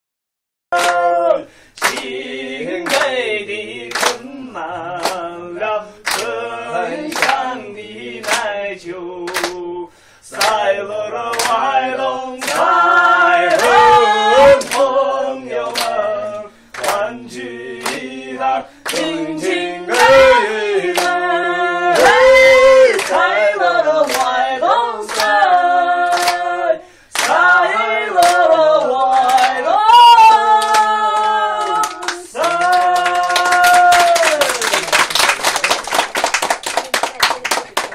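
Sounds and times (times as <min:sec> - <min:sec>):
unaccompanied singing: 0:00.7 - 0:34.8
quick hand clapping: 0:01.8 - 0:02.1, 0:09.3 - 0:09.6, 0:26.1 - 0:26.4, 0:27.2 - 0:27.4, 0:31.8 - 0:37.9.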